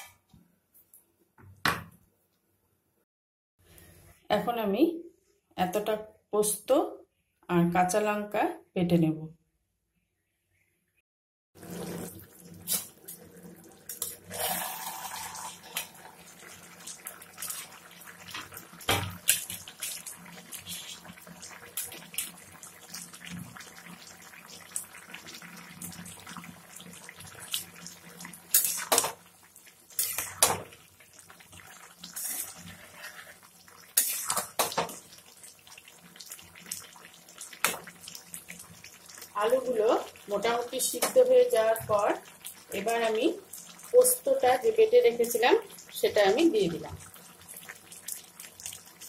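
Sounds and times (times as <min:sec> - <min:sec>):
water bubbling in a pan: 0:11.6 - 0:49.0
spatula stirring in a pan: 0:27.3 - 0:39.3.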